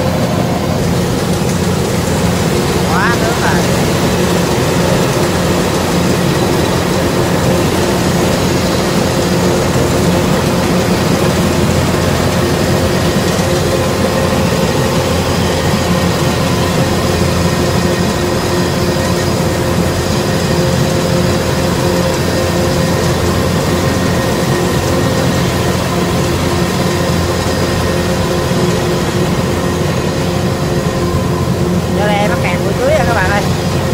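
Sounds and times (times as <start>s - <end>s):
harvester diesel engine drone: 0.0s - 33.9s.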